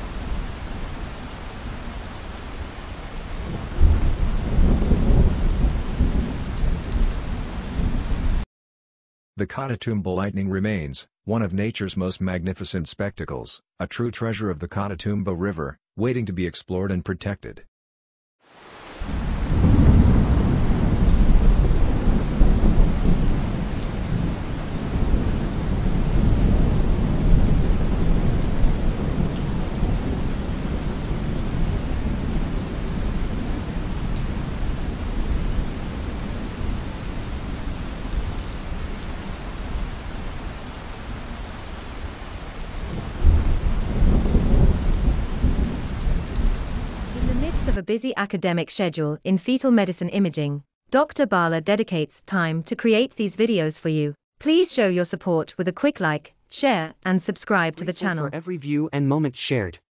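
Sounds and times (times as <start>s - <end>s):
heavy rain: 0.0s - 8.5s, 18.4s - 47.8s
rolling thunder: 3.4s - 7.2s, 19.0s - 38.8s, 42.8s - 47.7s.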